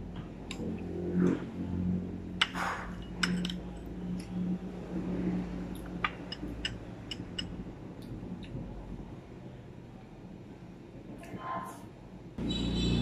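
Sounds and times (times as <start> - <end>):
tableware clinking: 2.5 - 3.9.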